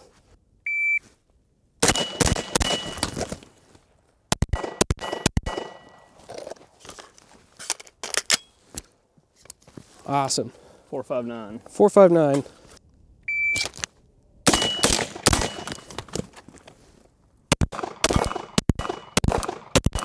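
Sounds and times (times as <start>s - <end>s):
pistol shots: 1.8s - 3.3s, 4.4s - 6.0s, 14.5s - 15.9s, 17.5s - 20.0s
suppressed rifle shots: 1.8s - 3.3s, 4.3s - 6.0s, 14.5s - 15.9s, 17.6s - 20.0s
shot timer beep: 13.3s - 13.7s.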